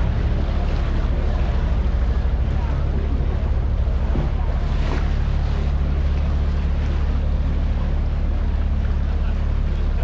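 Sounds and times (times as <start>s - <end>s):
boat motor humming: 0.0s - 10.0s
water wash: 0.0s - 10.0s.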